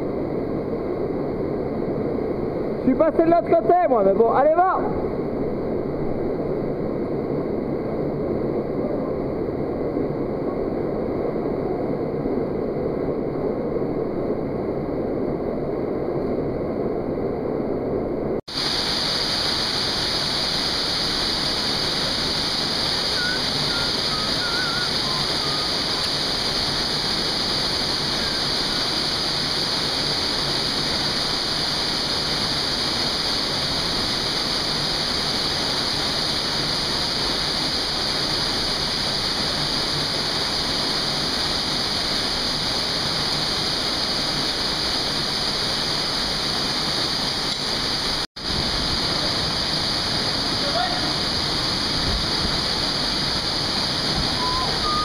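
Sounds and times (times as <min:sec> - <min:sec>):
waterfall rushing into pool: 0:18.5 - 0:55.0.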